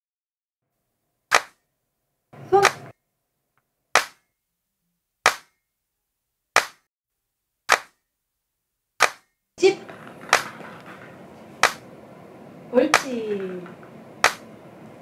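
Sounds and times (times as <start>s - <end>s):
sharp dry cracks: 1.3s - 1.6s, 4.0s - 4.3s, 5.2s - 5.6s, 6.6s - 6.9s, 7.7s - 8.0s, 9.0s - 9.3s, 9.9s - 11.0s, 11.6s - 11.8s, 14.2s - 14.5s.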